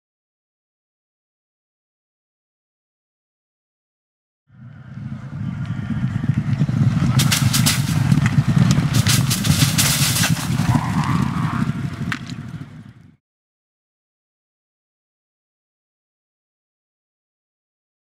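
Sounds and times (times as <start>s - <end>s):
horses hooves galloping: 4.6s - 13.2s
crackles of brushed plastic branches: 7.0s - 12.6s.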